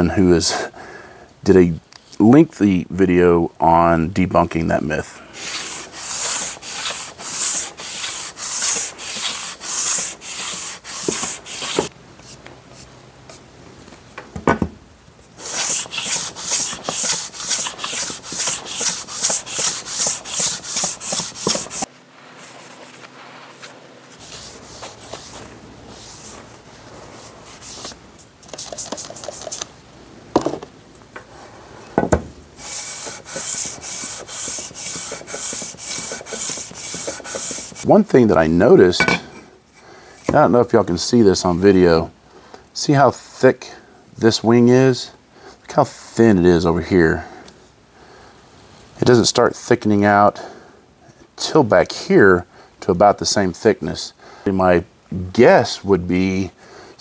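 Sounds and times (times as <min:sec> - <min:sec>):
metal plane rasping on sandpaper: 0:05.4 - 0:11.9, 0:15.4 - 0:21.9, 0:32.6 - 0:37.9.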